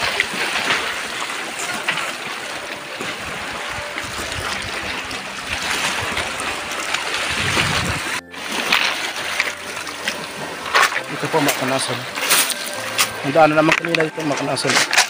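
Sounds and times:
waves lapping on pebble shore: 0:00.0 - 0:15.0
low rumble: 0:07.2 - 0:08.2.

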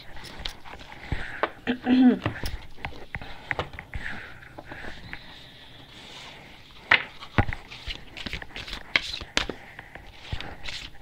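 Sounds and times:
cards sliding rustle: 0:05.9 - 0:11.0
cards snapping and tapping: 0:06.9 - 0:09.6.

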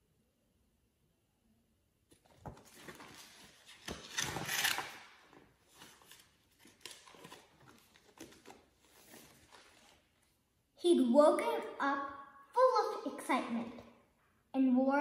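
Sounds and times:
book pages rustling: 0:02.1 - 0:10.4.

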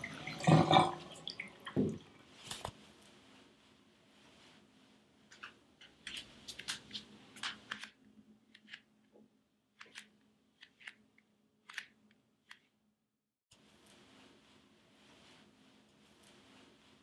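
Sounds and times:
towel rubbing damp hair: 0:13.7 - 0:17.0.

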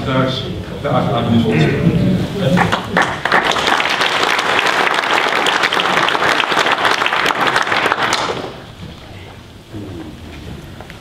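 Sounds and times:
audience applauding: 0:02.4 - 0:08.8.

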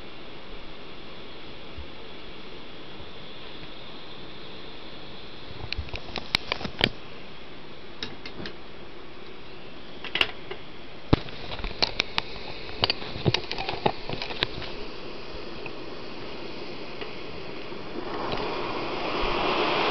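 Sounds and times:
stove burner hissing: 0:00.0 - 0:19.9
sharp clicks and knocks: 0:08.0 - 0:08.6, 0:10.0 - 0:14.8.

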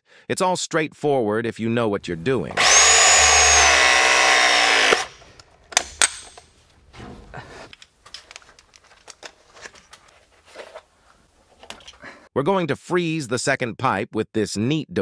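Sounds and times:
press tool motor whining: 0:02.0 - 0:05.9
sharp clicks: 0:02.5 - 0:06.5.

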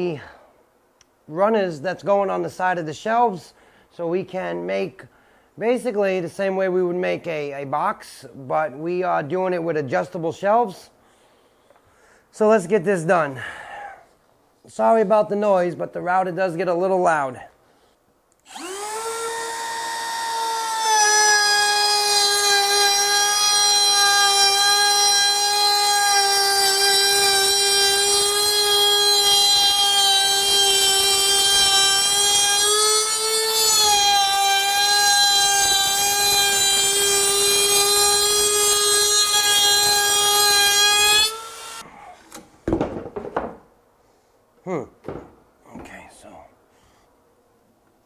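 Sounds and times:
router whining: 0:18.4 - 0:41.8.

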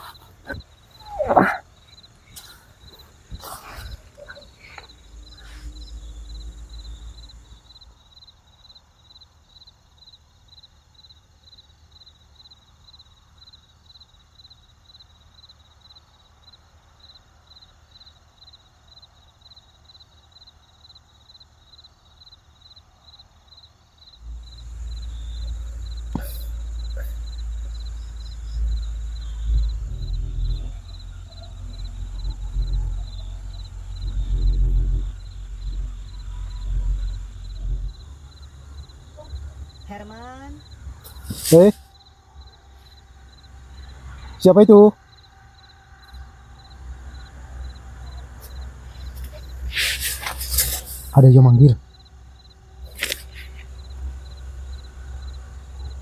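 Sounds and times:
crickets chirping: 0:00.0 - 0:56.0
low rumble: 0:00.4 - 0:08.0, 0:24.2 - 0:41.3.

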